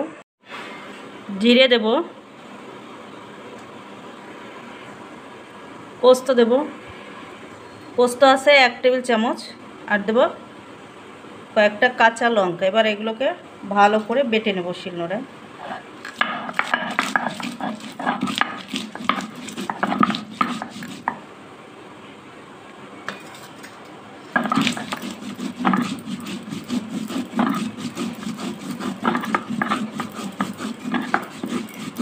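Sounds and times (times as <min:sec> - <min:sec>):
grinding stone scraping on stone slab: 0:15.6 - 0:21.2, 0:24.4 - 0:32.0.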